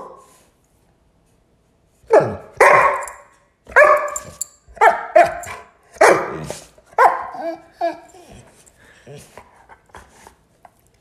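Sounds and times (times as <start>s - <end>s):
dog barking: 2.1s - 7.4s.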